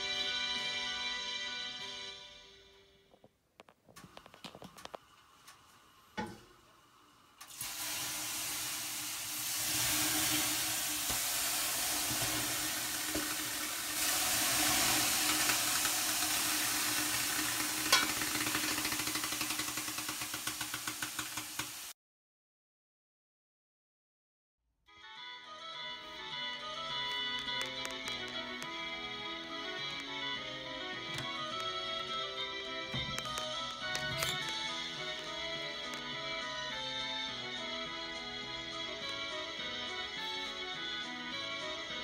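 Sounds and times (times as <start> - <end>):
water hissing on hot stones: 7.5 - 21.9.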